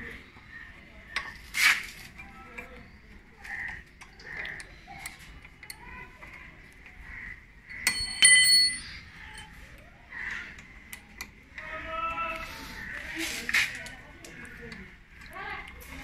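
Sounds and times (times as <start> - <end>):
metal tool striking metal: 7.8 - 9.0.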